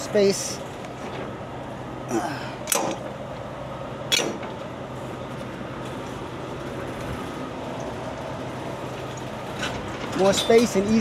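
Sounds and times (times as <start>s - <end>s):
steady low hum: 0.0s - 10.2s
sharp metal clanks: 2.6s - 3.1s, 4.1s - 4.6s.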